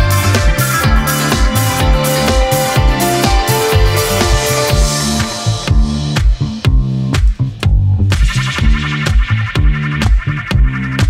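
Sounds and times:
electric guitar: 0.0 - 7.3
electric bass line: 0.0 - 11.0
funk band playing: 0.0 - 11.0
kick drum beat: 0.0 - 11.0.

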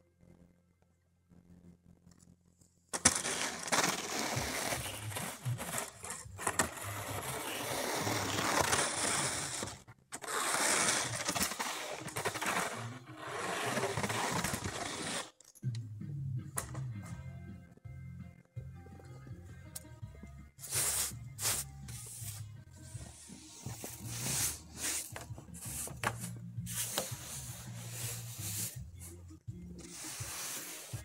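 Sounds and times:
background music: 2.9 - 31.0
snow scraped off a roof: 3.0 - 15.3, 20.6 - 22.5, 23.1 - 29.1, 29.8 - 31.0.

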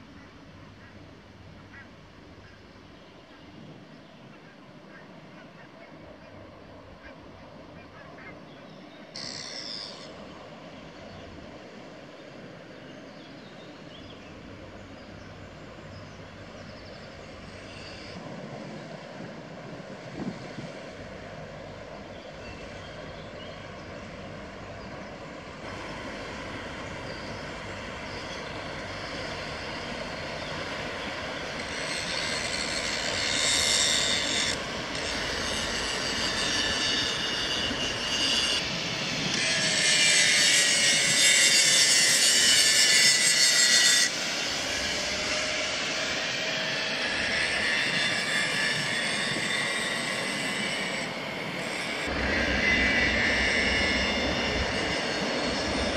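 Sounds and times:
diesel engine drone: 20.9 - 37.8, 51.0 - 55.9.

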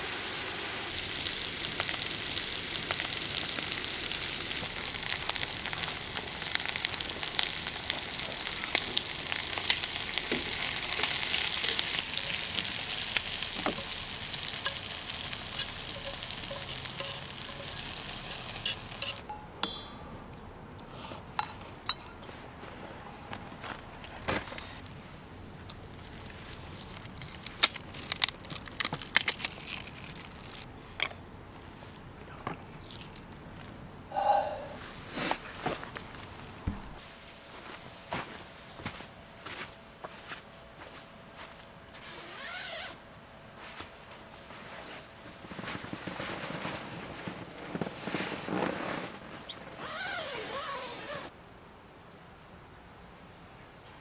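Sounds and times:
chopsticks clinking metal bowl: 13.5 - 20.5
tent fabric and bedding rustling: 34.8 - 51.4.

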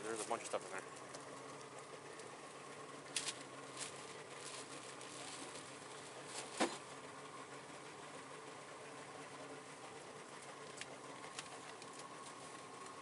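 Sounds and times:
low steady hum: 0.0 - 13.0
faint rustles and knocks: 3.1 - 7.0.

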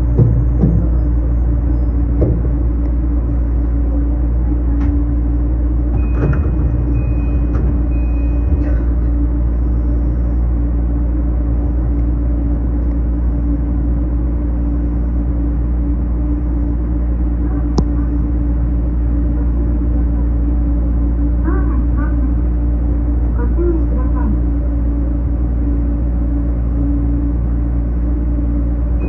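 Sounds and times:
train rumble and hum: 0.0 - 29.0.

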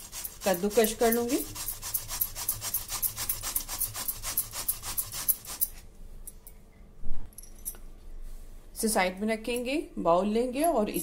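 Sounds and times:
rasping grater strokes: 0.0 - 5.8.

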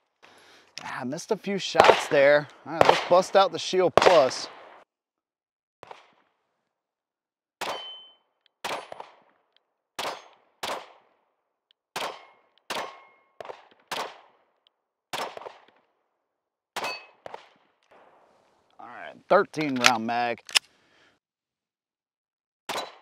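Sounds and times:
pistol shots: 1.7 - 4.8, 7.6 - 9.4, 10.0 - 11.2, 12.0 - 14.4, 15.1 - 15.8, 22.7 - 23.0.

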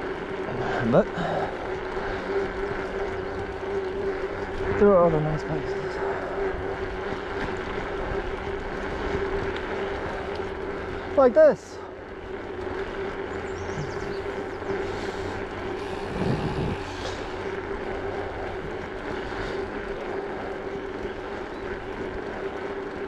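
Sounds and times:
bicycle tyres rolling on asphalt: 0.0 - 23.0
steady hum: 0.0 - 23.0
wind on microphone: 15.8 - 17.4.

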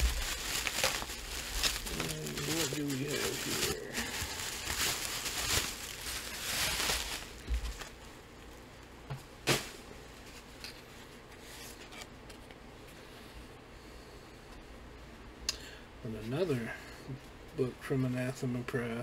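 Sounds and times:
faint room hiss: 0.0 - 19.0.

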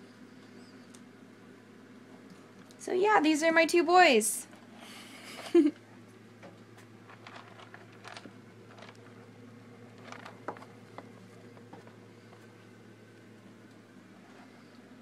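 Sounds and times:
low steady hum: 0.0 - 15.0
rats rustling in cage: 6.4 - 15.0.

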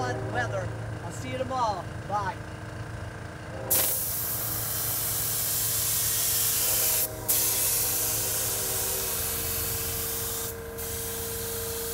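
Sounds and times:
paint spray gun hissing: 3.7 - 11.9.

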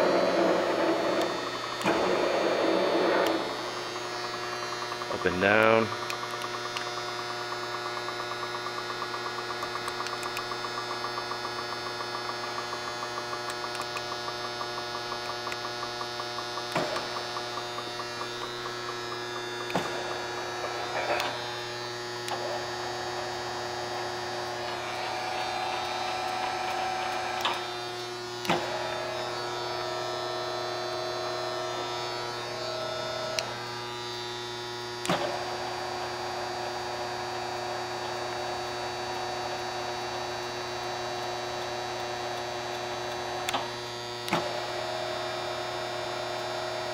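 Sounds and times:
high-pitched whine: 0.0 - 6.1, 16.7 - 36.2
grinder motors humming: 0.0 - 46.9
fast regular ticking: 3.8 - 22.3.

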